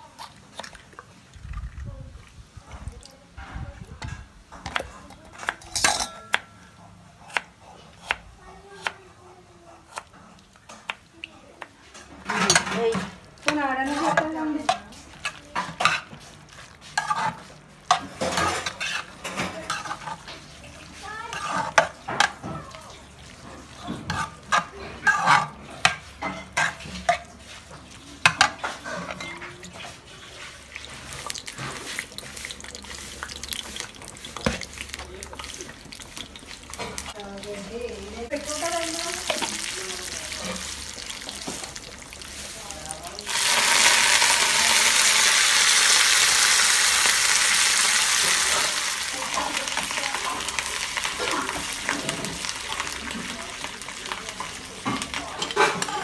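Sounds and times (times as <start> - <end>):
metal spoon scraping a pan: 11.9 - 22.5, 23.4 - 42.6, 54.4 - 56.0
hot oil sizzling: 11.9 - 56.0.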